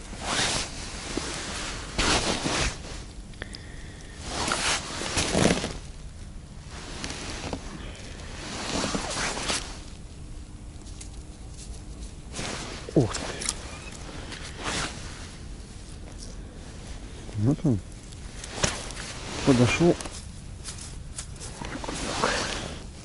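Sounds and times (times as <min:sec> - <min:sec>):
clothing rustling: 0:00.0 - 0:03.2, 0:04.2 - 0:06.0, 0:06.7 - 0:17.3, 0:18.0 - 0:23.0
snow crunching: 0:18.3 - 0:22.8.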